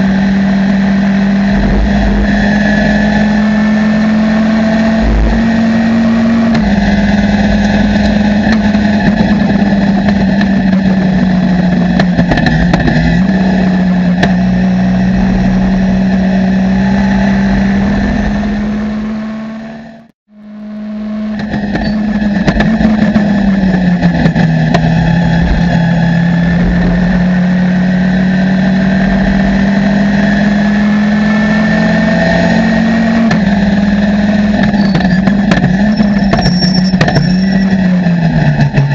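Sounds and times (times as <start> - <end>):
race car engine revving high: 0.0 - 38.9.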